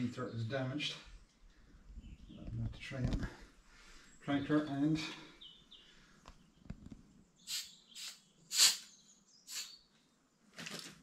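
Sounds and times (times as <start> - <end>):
aerosol can hissing squirts: 7.5 - 8.9, 9.5 - 9.8.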